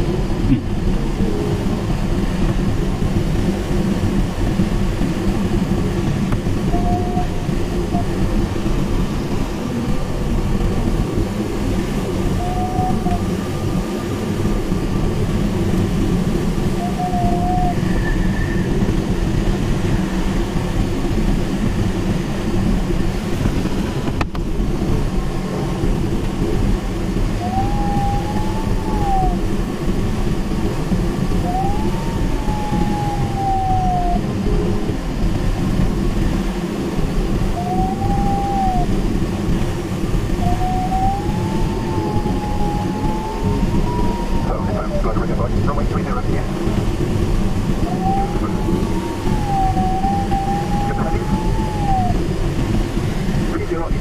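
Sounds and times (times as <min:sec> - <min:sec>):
airflow rushing around glider canopy: 0:00.0 - 0:54.0
variometer electronic tones: 0:06.4 - 0:14.4, 0:15.8 - 0:18.9, 0:27.2 - 0:35.0, 0:37.2 - 0:53.7.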